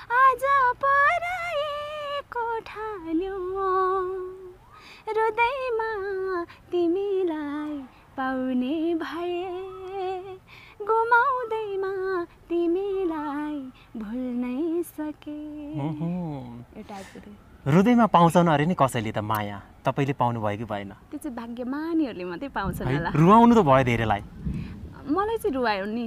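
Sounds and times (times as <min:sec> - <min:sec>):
woman singing unaccompanied: 0:00.0 - 0:17.4, 0:21.1 - 0:23.3, 0:25.0 - 0:26.0.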